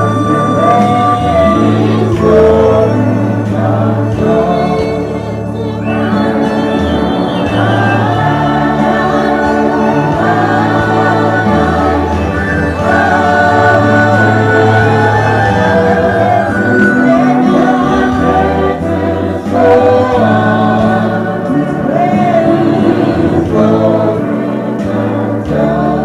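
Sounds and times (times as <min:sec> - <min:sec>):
choir singing in harmony: 0:00.0 - 0:26.0
sustained low notes: 0:07.6 - 0:25.1.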